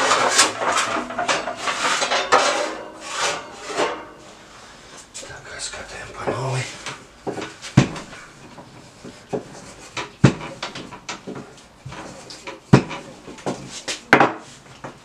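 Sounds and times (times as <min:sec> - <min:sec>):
rolling pin knocking on table: 0:10.2 - 0:10.9, 0:12.7 - 0:14.4.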